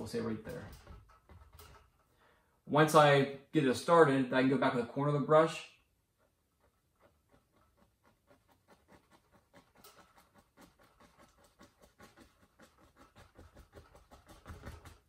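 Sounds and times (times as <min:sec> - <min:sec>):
brush dabbing on canvas: 0:06.2 - 0:15.0.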